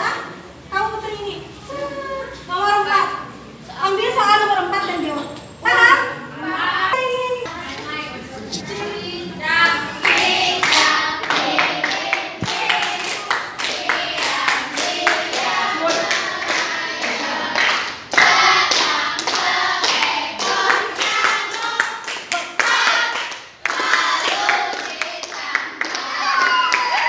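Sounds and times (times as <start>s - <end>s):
group singing: 8.6s - 26.6s
hands clapping: 10.0s - 14.9s.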